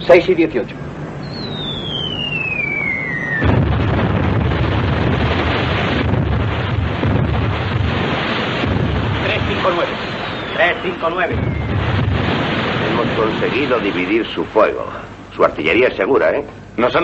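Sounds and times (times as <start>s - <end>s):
falling shell whistle: 1.2s - 3.7s, 10.0s - 12.0s
explosion roar with heavy rumble: 1.3s - 14.6s.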